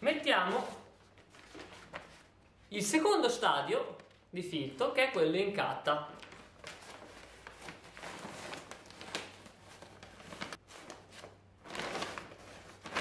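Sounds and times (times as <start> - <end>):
paper bag rustling and crinkling: 0.4 - 2.4, 6.1 - 13.0.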